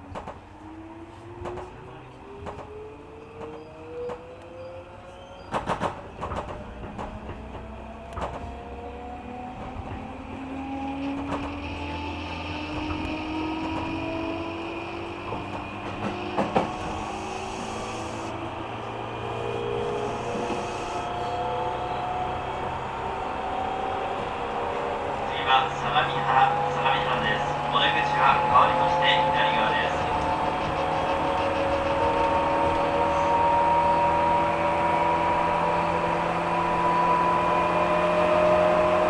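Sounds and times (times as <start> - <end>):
wheels clacking on track: 0.0 - 0.5, 1.4 - 34.9
train rumble: 0.0 - 39.0
train motor whine: 0.6 - 39.0.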